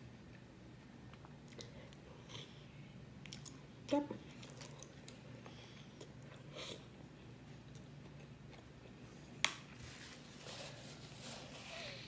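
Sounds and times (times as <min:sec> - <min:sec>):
person chewing food: 0:03.2 - 0:09.4.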